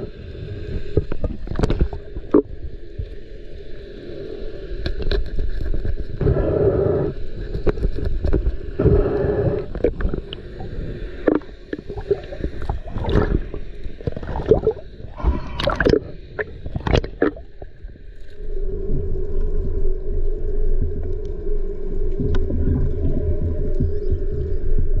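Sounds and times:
muffled underwater knocks and scrapes: 0.9s - 2.5s, 7.4s - 9.0s
steady low drone: 6.0s - 25.0s.

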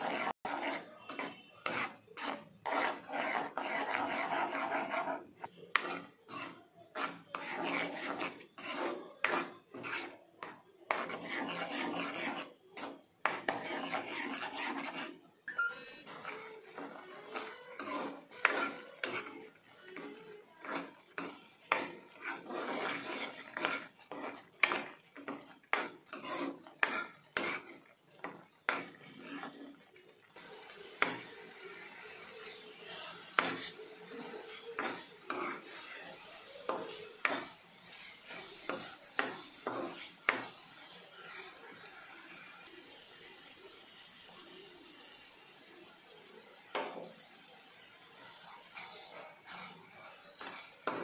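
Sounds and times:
spoon scraping thick mixture in pan: 0.0s - 51.0s.

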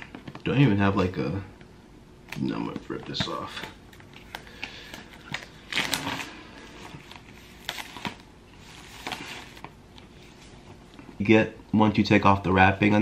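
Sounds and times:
plastic shrink-wrap tearing and crinkling: 2.3s - 9.8s.

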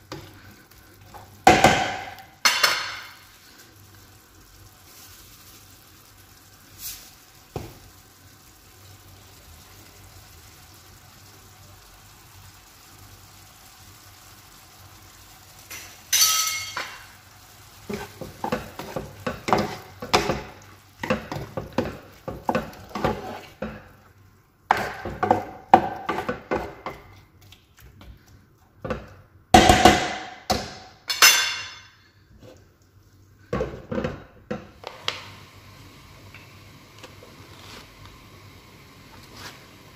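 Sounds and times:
faint sizzle: 0.0s - 29.6s, 30.3s - 39.9s
spatula scraping frying pan: 17.8s - 24.0s.

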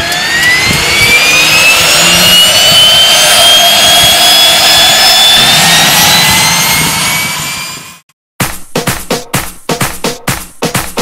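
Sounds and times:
turbine engine whine: 0.0s - 8.1s.

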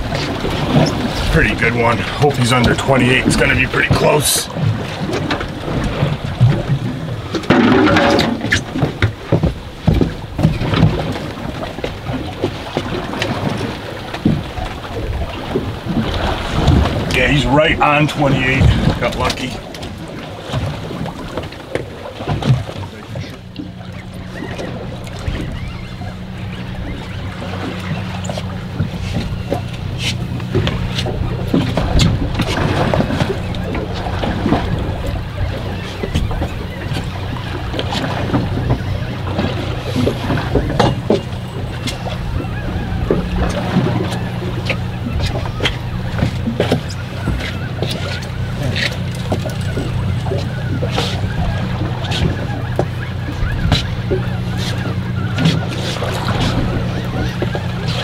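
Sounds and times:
knocks and thumps on boat: 0.0s - 58.0s
water noise: 0.0s - 58.0s
wind: 0.0s - 58.0s.

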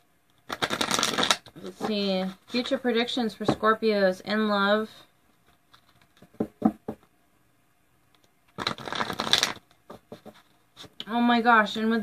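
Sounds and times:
card shuffling: 0.5s - 2.8s, 5.5s - 6.4s, 8.5s - 11.0s.

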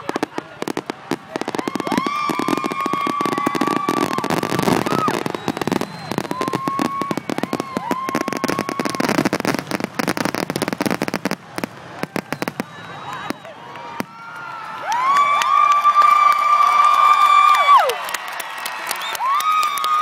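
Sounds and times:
fireworks whistling: 0.0s - 14.5s
fireworks crackling and popping: 0.0s - 15.6s.

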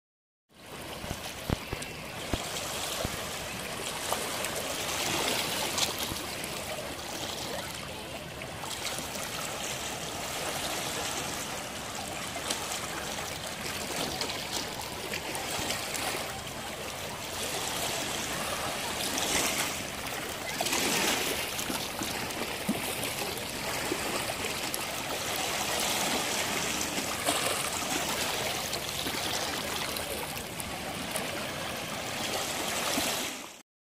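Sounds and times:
water lapping over rocks: 0.6s - 33.6s.

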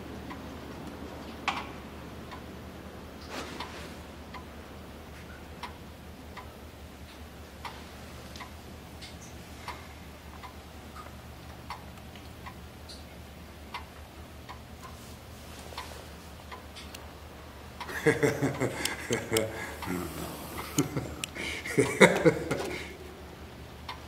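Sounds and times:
low steady hum: 0.0s - 24.0s
slow even ticking: 15.8s - 24.0s.

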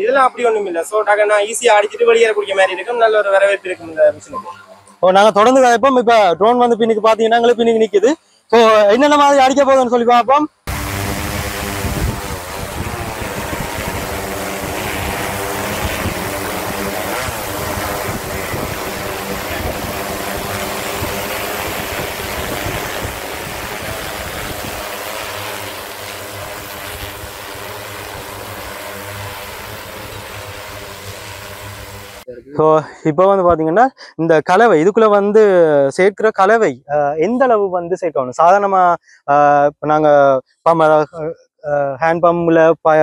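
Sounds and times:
drone rotors humming: 10.7s - 32.3s.

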